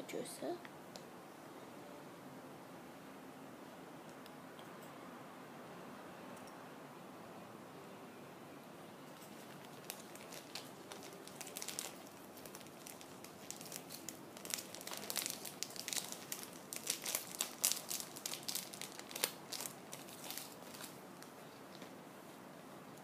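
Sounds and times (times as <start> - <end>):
packaging crinkling: 9.2 - 21.9.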